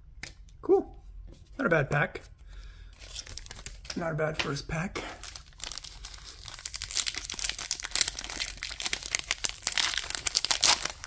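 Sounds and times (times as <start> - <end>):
foil wrapper crinkling: 5.2 - 11.0.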